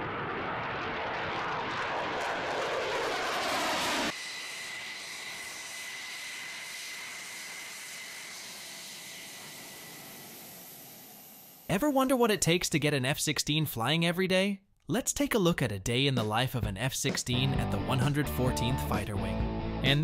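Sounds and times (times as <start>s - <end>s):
jet flying past: 0.0s - 11.7s
jet engine whine taxiing: 0.0s - 11.9s.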